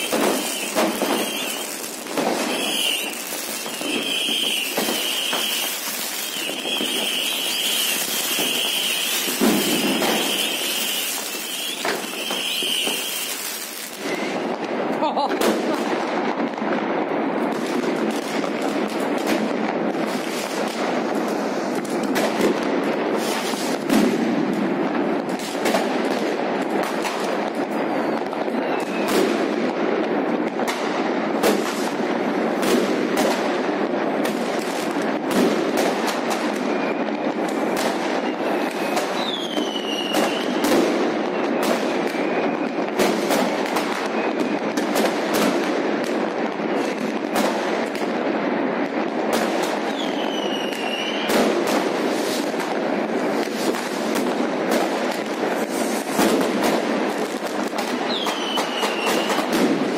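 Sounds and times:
firework whistles: 0.0 - 14.6, 20.0 - 22.2, 23.1 - 23.9, 27.6 - 29.4, 36.2 - 45.6, 46.6 - 47.3, 49.4 - 59.9
fireworks bangs and crackling: 0.0 - 59.9.

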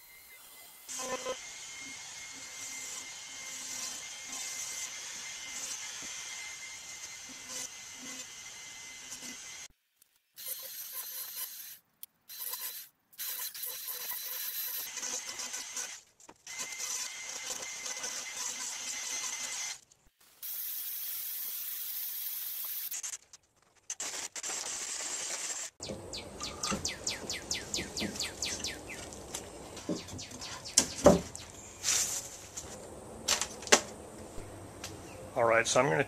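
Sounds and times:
sharp knocks: 29.8 - 31.4.

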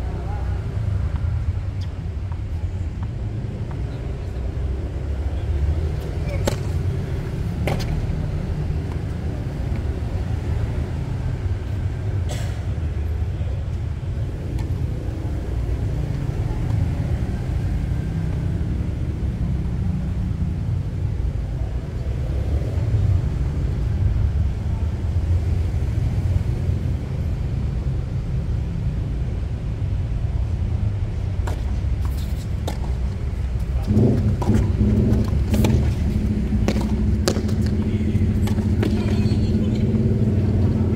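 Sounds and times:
tennis ball struck by racket: 6.4 - 6.8, 32.3 - 33.1, 34.2 - 37.7
steady low rumble: 29.0 - 40.9.

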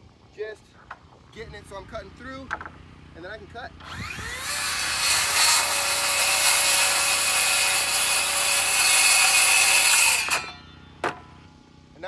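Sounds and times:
circular saw cutting wood: 3.8 - 10.8.

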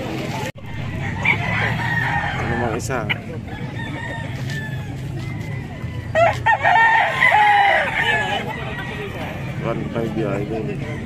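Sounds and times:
rooster crowing: 0.8 - 2.9, 3.5 - 9.4.

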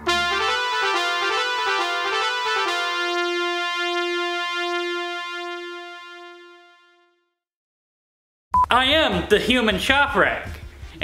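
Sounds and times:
keyboard music sting: 0.0 - 7.0.

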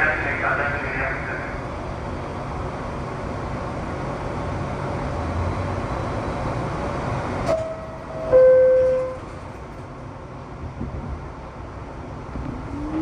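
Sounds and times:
subway car ventilation hum: 0.0 - 13.0.

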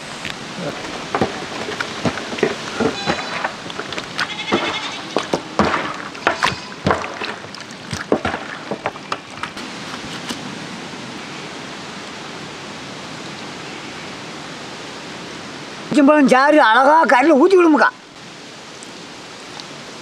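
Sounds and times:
steady hiss: 0.0 - 17.0, 17.6 - 20.0
wet slaps and squelches: 6.0 - 9.6.

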